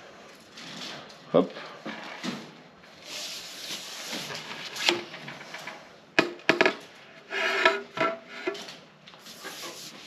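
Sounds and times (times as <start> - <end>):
pole section sliding: 7.2 - 8.6.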